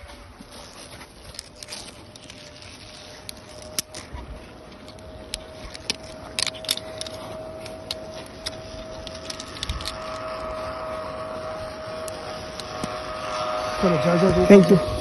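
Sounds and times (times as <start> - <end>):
clicks and crackles: 0.0 - 10.8, 11.5 - 13.0
jacket rustling against microphone: 0.0 - 13.8
faint steady hum: 0.0 - 15.0.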